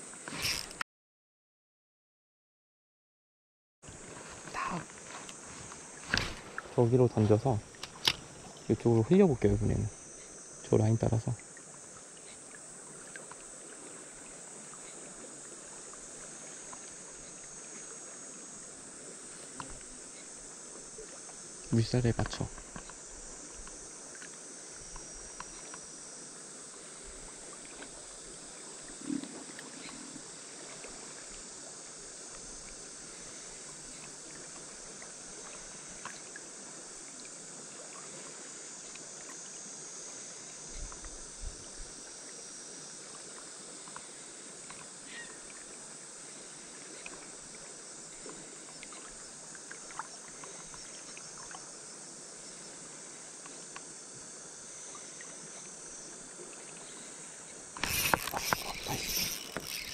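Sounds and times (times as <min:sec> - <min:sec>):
faint insect chirring: 0:00.0 - 0:00.8, 0:03.9 - 0:59.9
river current rushing: 0:03.9 - 0:09.4, 0:57.8 - 0:59.9.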